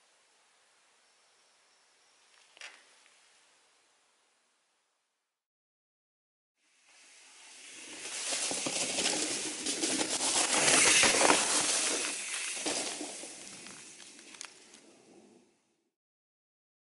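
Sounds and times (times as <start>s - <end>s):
bike tyres crunching on dirt trail: 7.0s - 15.0s.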